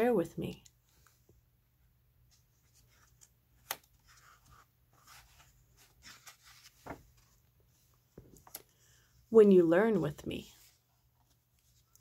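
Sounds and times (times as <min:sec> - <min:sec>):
paper pages rustling: 0:02.3 - 0:08.7, 0:10.5 - 0:12.0.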